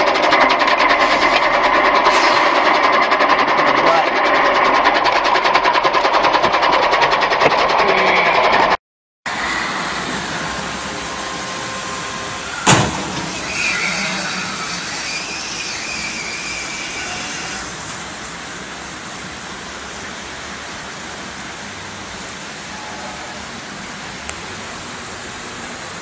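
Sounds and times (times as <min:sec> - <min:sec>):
traffic on wet road: 0:09.3 - 0:15.6, 0:16.9 - 0:26.0
rain hissing: 0:09.3 - 0:26.0
sharp bang: 0:12.6 - 0:13.5.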